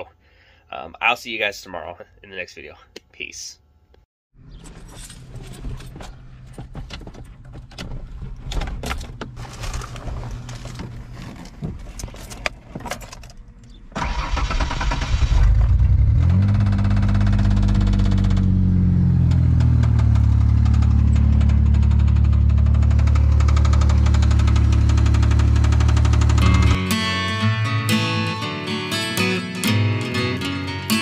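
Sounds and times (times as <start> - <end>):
clicks and handling noises: 7.5 - 13.8
starter cranking: 14.0 - 18.6
car engine revving and idling: 14.1 - 26.8.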